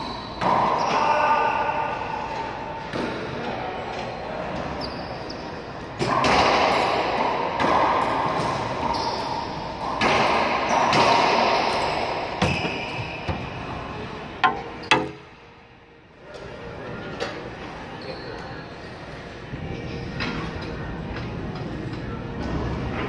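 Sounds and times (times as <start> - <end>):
racquet smacking ball: 14.4 - 15.3
ball hitting walls and floor: 14.4 - 15.4.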